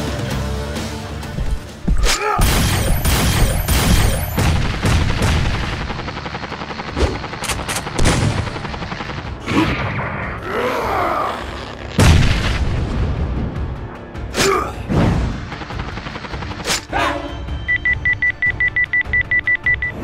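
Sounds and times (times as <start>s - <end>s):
cartoon explosions: 2.3s - 6.0s
cartoon gunshot blasts: 2.4s - 5.6s.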